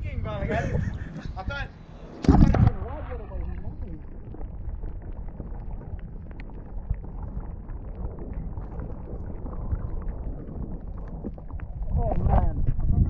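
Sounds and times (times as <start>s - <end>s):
underwater rumble of moving water: 0.0s - 13.0s.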